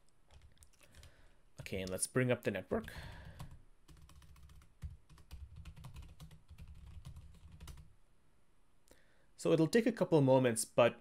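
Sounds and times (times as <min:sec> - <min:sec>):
faint keyboard typing: 0:00.0 - 0:02.0, 0:02.8 - 0:07.9.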